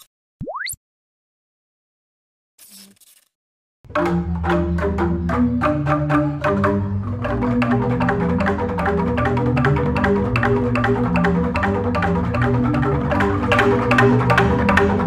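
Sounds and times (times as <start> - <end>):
bamboo tube gamelan playing: 3.9 - 15.0.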